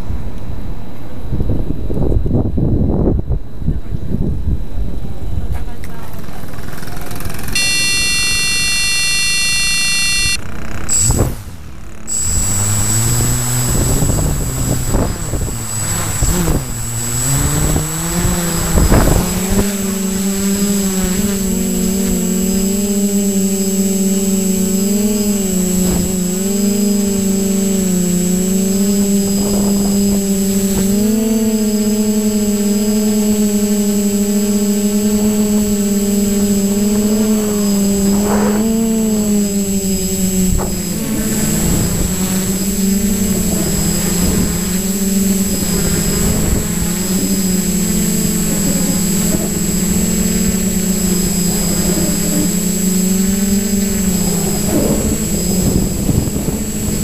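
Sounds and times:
drone motors and propellers humming: 0:00.0 - 0:57.0
long electronic beep: 0:07.6 - 0:13.4.

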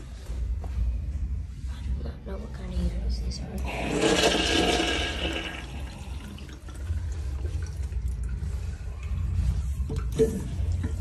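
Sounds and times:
urinal flushing: 0:03.6 - 0:11.0.

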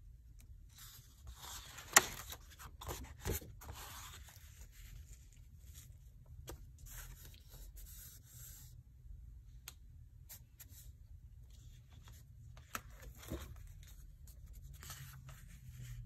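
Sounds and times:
paper page flipping: 0:00.8 - 0:05.1.

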